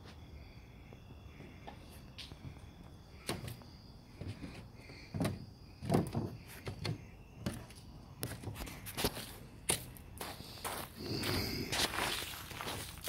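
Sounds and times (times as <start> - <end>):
footsteps on wooden deck: 3.2 - 13.0.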